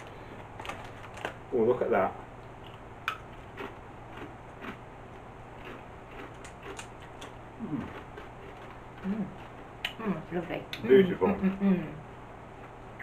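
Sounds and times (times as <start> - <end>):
plastic chip bag crinkling: 0.0 - 1.8
tortilla chips crunching: 5.6 - 9.6.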